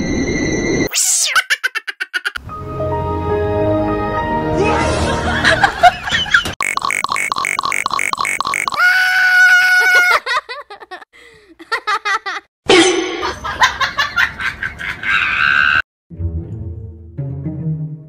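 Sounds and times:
girl giggling laughter: 0:01.3 - 0:02.4, 0:09.8 - 0:12.4, 0:13.2 - 0:15.4
girl squealing: 0:08.8 - 0:10.4.

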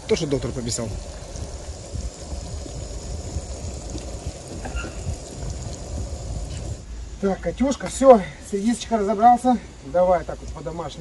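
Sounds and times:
fish frying in hot oil: 0:00.0 - 0:06.9.

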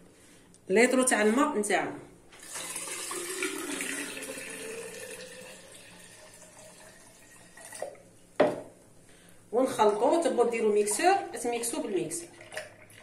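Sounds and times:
water pouring into glass pitcher: 0:02.4 - 0:08.1, 0:10.4 - 0:13.0.

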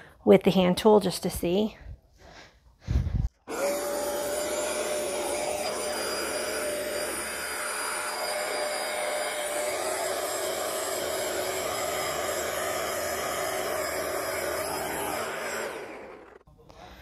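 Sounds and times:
carpet cleaner motor whine: 0:03.4 - 0:16.5.

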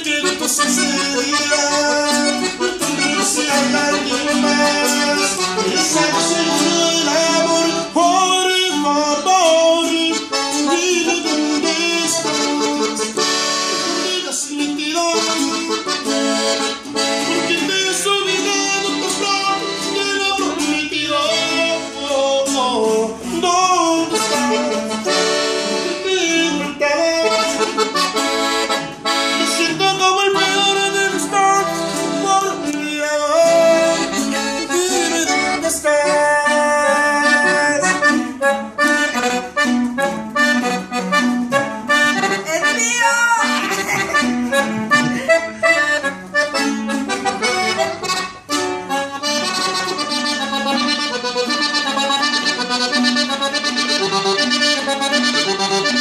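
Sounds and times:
button accordion melody: 0:00.0 - 0:56.0.

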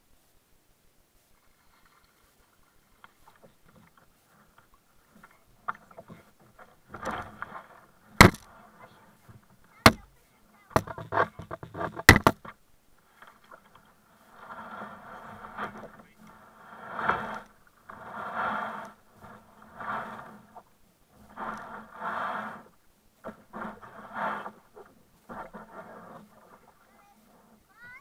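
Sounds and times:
kayak paddle splashing: 0:01.3 - 0:28.0
knocks on plastic hull: 0:08.2 - 0:08.5, 0:09.8 - 0:10.1, 0:10.7 - 0:12.5.

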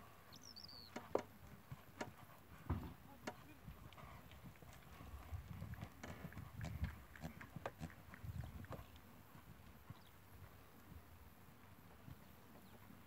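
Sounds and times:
horse hoofbeats on sand: 0:01.0 - 0:13.0.

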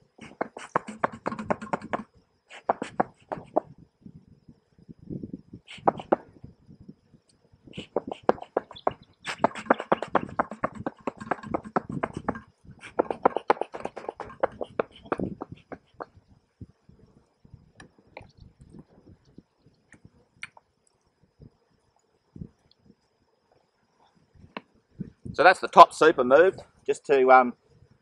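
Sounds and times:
bellows puffing and clicking: 0:00.2 - 0:03.7, 0:05.7 - 0:06.2, 0:07.8 - 0:16.2.

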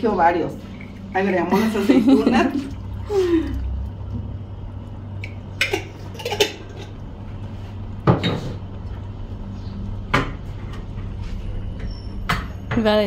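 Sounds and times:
low steady hum: 0:00.0 - 0:13.0
utensils clinking against cookware: 0:05.6 - 0:06.9.

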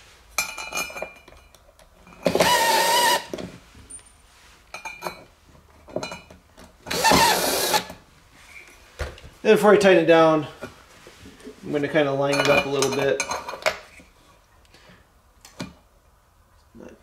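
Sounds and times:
cordless drill whirring: 0:02.2 - 0:03.4, 0:06.9 - 0:08.0.

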